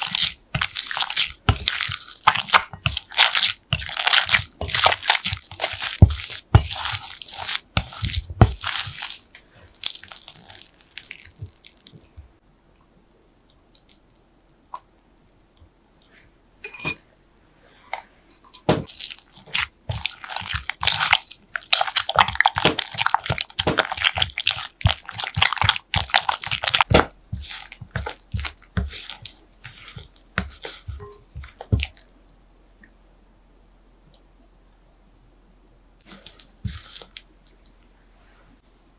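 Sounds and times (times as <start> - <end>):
wet squelching: 0.0 - 11.9, 18.9 - 32.1
spatula scraping dough in bowl: 22.1 - 31.7.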